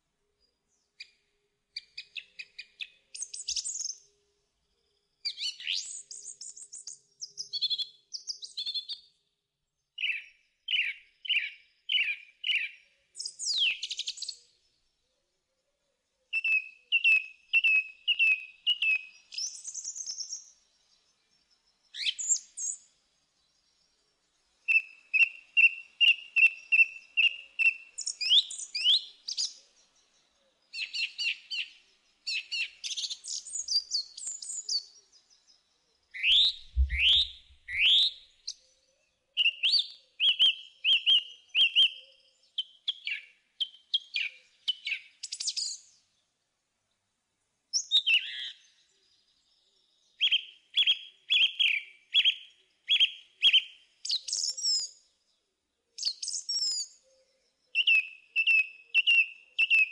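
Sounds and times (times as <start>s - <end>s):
songbird singing: 0.0s - 59.9s
low thump: 36.6s - 37.8s.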